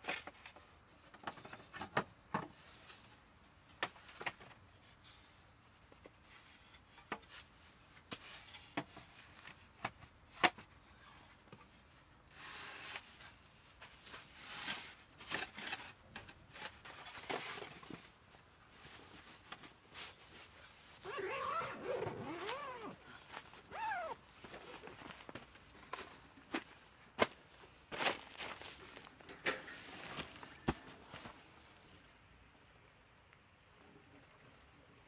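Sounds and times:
parts rustling and sliding: 11.4 - 31.9
zipper pulled open: 21.0 - 23.0, 23.6 - 25.0.

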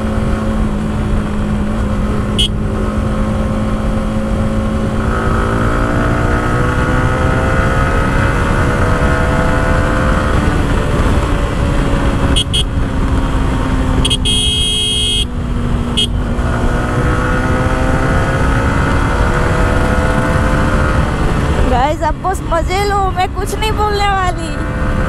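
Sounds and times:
wind rush: 0.0 - 14.2, 15.3 - 25.0
motorcycle engine cruising: 0.0 - 25.0
horn beeping: 2.3 - 2.6, 12.3 - 12.8, 14.0 - 15.3, 16.0 - 16.3.

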